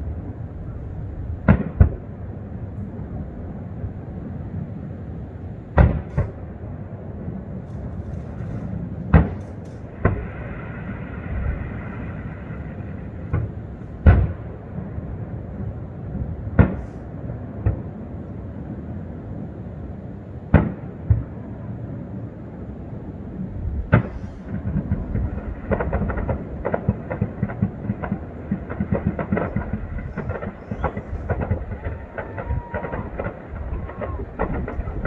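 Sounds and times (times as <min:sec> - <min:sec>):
steady low background noise: 0:00.0 - 0:35.0
distant firework bangs: 0:01.4 - 0:02.1, 0:05.7 - 0:06.4, 0:07.8 - 0:14.6, 0:16.6 - 0:17.8, 0:23.9 - 0:35.0.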